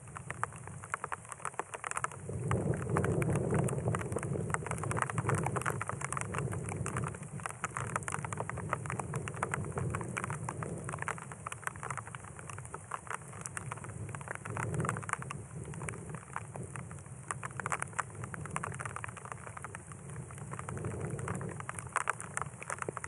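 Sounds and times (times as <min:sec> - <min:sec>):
raindrops pattering: 0:00.0 - 0:23.0
distant thunder rumble: 0:02.2 - 0:11.2.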